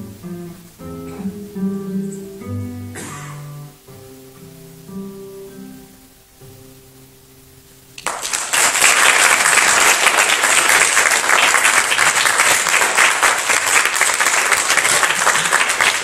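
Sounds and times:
classical guitar notes: 0.0 - 8.0
audience applauding: 8.0 - 16.0.

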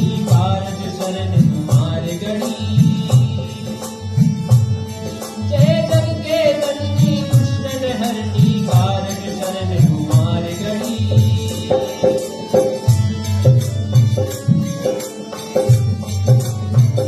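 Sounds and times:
man singing: 0.0 - 4.2, 5.1 - 13.7
hand drum beating: 0.0 - 17.0
harmonium: 0.0 - 17.0.

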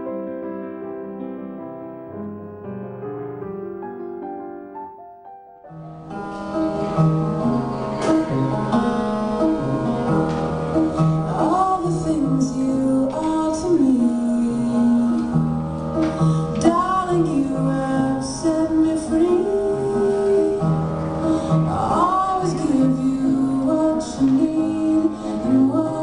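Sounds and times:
soft piano piece: 0.0 - 26.0
pop song with singing: 11.2 - 26.0.

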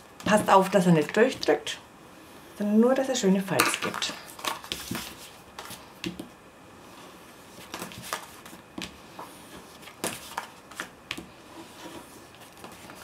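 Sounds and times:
paper rustling: 3.8 - 5.9, 7.5 - 13.0.

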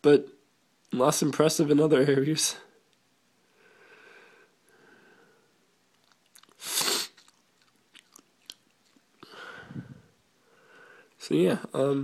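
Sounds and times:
faint breaths: 3.4 - 5.7, 9.2 - 11.2
person sneezing: 6.6 - 7.3.

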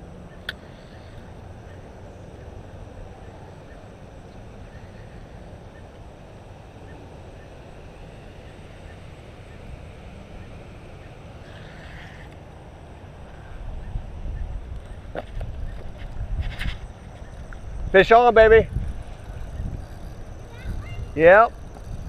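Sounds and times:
wind rumble on microphone: 13.0 - 22.0.

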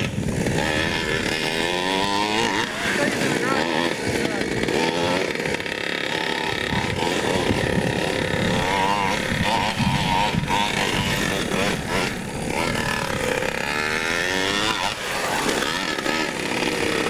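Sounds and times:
two-stroke engine revving: 0.0 - 17.0.

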